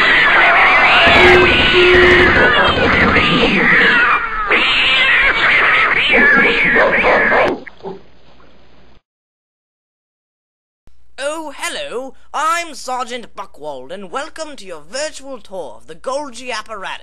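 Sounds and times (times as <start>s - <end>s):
overlapping yowling cries: 0.0s - 7.6s.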